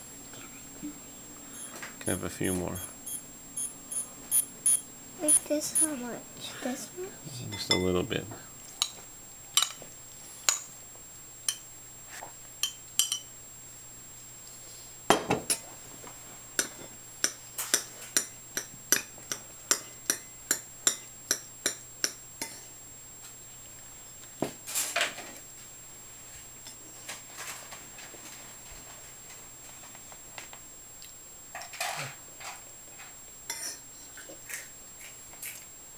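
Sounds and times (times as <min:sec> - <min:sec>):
metal spoon clinking against bowls: 0:07.5 - 0:08.0, 0:12.6 - 0:13.3.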